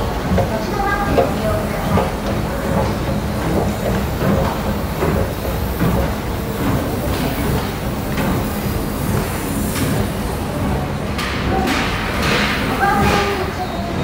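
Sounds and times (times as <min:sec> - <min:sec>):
escalator mechanical hum: 0:00.0 - 0:14.0.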